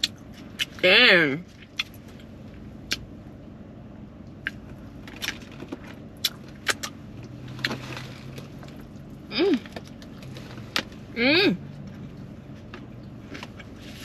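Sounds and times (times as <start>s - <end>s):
chewing noises: 4.3s - 10.9s.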